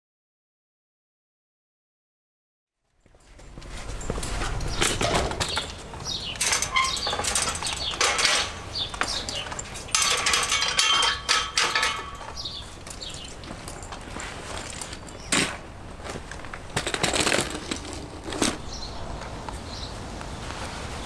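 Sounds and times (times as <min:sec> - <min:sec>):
chain-link fence rattling: 0:03.2 - 0:18.8.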